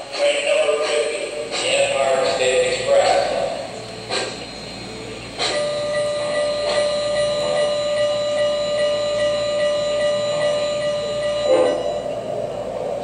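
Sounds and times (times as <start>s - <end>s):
steady whistle-like tone: 5.4s - 12.9s.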